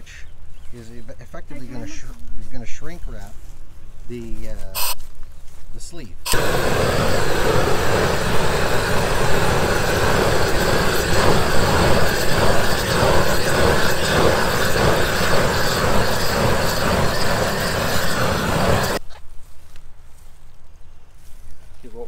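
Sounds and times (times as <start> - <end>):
propane torch burning: 4.8 - 5.0, 6.3 - 19.0.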